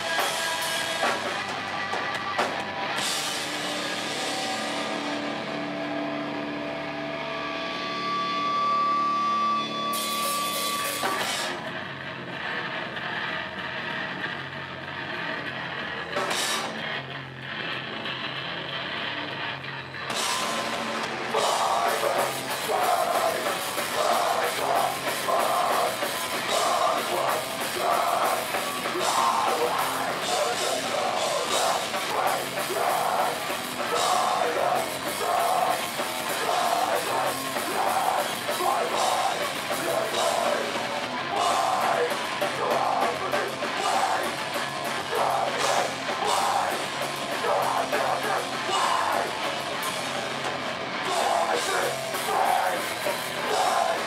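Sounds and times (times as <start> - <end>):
drum kit with cymbal hits: 0.0 - 6.3, 7.9 - 11.8, 16.0 - 17.1, 20.1 - 54.0
bass guitar: 0.0 - 54.0
distorted electric guitar: 0.0 - 54.0
person singing into a microphone: 21.3 - 49.5, 51.0 - 54.0.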